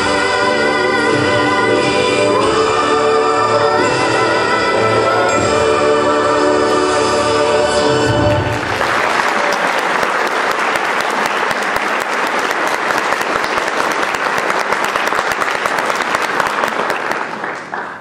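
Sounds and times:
audience applause: 0:08.2 - 0:18.0.

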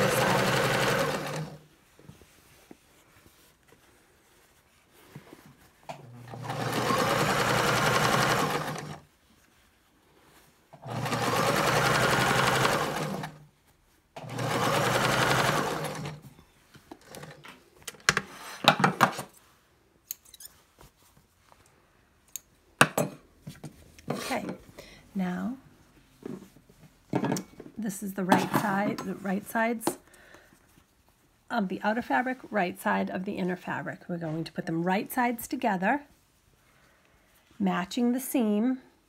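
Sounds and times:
sewing machine running: 0:00.0 - 0:01.6, 0:06.1 - 0:09.0, 0:10.8 - 0:13.4, 0:14.2 - 0:16.2.

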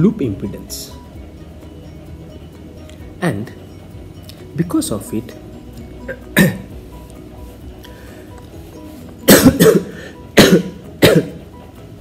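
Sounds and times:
man coughing: 0:06.0 - 0:06.8, 0:09.3 - 0:11.4.

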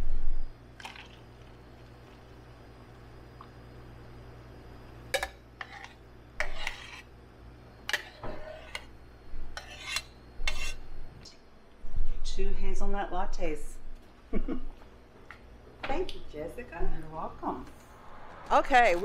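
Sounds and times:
low hum: 0:00.0 - 0:05.5, 0:16.7 - 0:19.0.

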